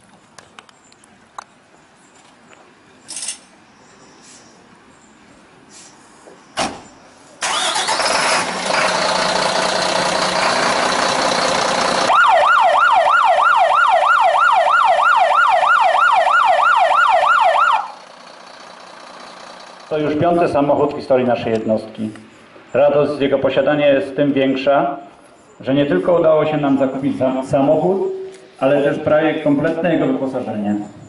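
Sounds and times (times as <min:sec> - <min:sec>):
short thump: 0:06.6 - 0:06.9
diesel engine running loudly: 0:07.4 - 0:12.2, 0:17.8 - 0:20.3
electronic siren yelping: 0:12.1 - 0:18.0.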